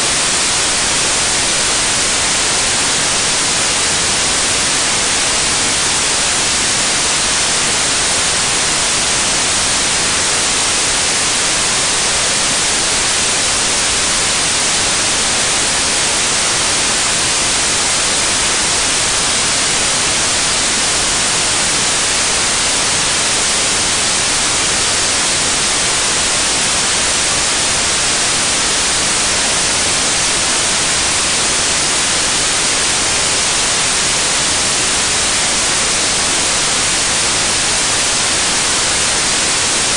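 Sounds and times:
loud static hiss: 0:00.0 - 0:39.9.

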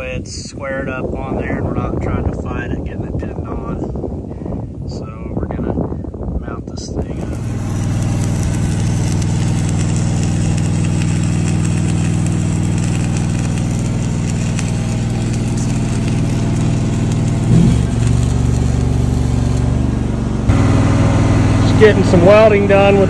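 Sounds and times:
engine running steadily: 0:07.0 - 0:23.0.

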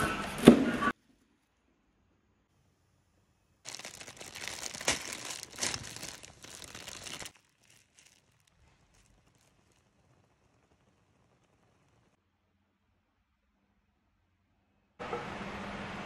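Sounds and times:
plastic packets crinkling: 0:03.7 - 0:10.1.

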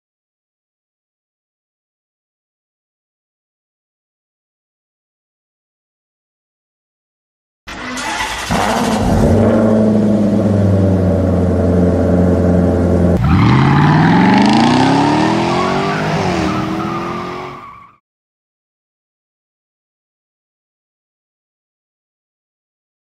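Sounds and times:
car engine revving up: 0:07.7 - 0:17.7
car engine running steadily: 0:08.5 - 0:13.3.

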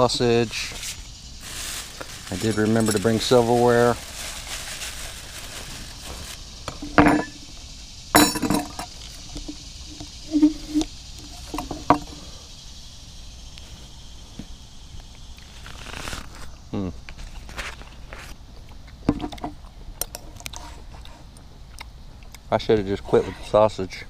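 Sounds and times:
silverware clinking on plate: 0:06.7 - 0:07.4, 0:08.2 - 0:08.9.

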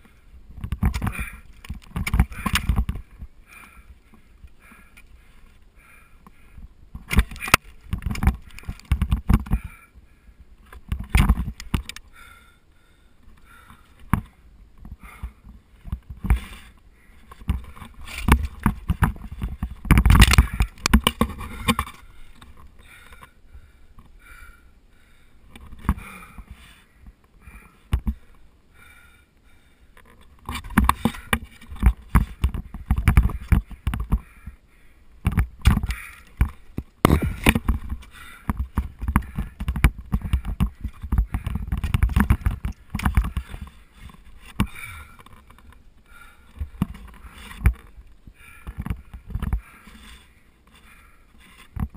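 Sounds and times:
ice axe and crampons striking ice: 0:17.4 - 0:22.0, 0:35.2 - 0:43.6.

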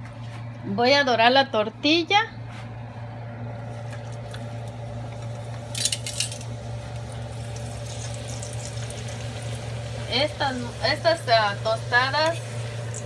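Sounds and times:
tortilla sizzling in hot oil: 0:03.7 - 0:13.0
tongs clattering against pan: 0:05.7 - 0:06.5.

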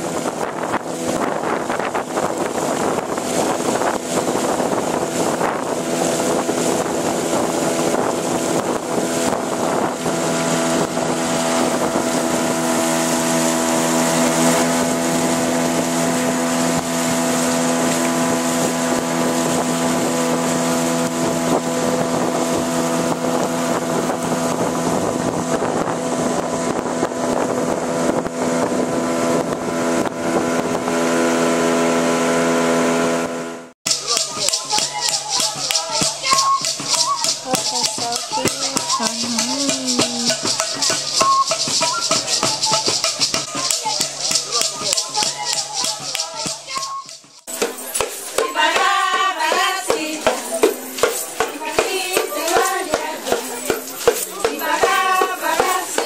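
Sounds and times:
wind buffeting microphone: 0:00.0 - 0:32.3
boat engine hum: 0:00.0 - 0:56.0
water rushing past hull: 0:00.0 - 0:56.0.

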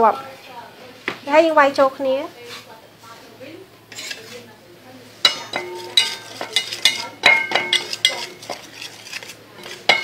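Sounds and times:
utensil knocking metal bowl: 0:05.3 - 0:08.7, 0:09.6 - 0:10.0.

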